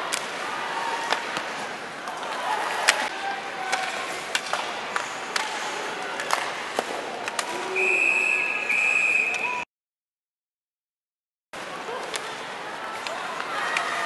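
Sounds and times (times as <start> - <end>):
hockey sticks and puck clacking: 0.0 - 7.8, 12.0 - 14.0
crowd noise: 0.0 - 9.6, 11.6 - 14.0
referee's whistle blasts: 7.7 - 9.6.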